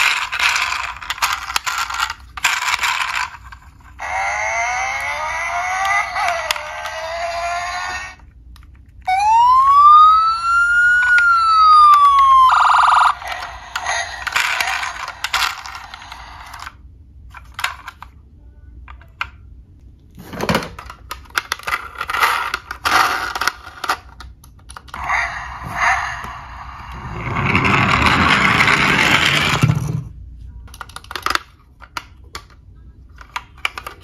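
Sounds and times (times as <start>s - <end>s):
plastic toy clicks and rattles: 0.0s - 8.0s, 10.9s - 18.2s, 20.7s - 25.0s, 30.7s - 34.0s
toy electronic siren wail: 4.0s - 8.2s, 9.0s - 16.5s.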